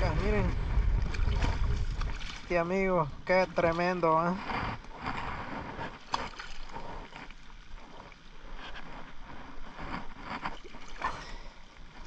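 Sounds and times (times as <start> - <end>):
wind buffeting microphone: 0.0 - 7.2
water splashing and sloshing: 0.0 - 12.0.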